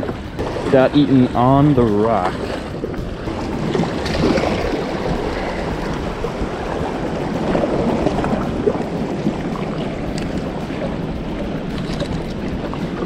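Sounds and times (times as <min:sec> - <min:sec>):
water washing against rocks: 0:00.0 - 0:13.0
wind rushing over microphone: 0:00.0 - 0:13.0.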